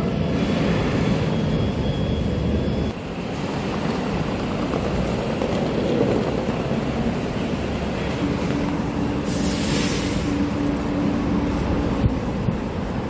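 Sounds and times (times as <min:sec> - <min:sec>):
road traffic rumble: 0:00.0 - 0:13.0
hiss: 0:09.2 - 0:10.5.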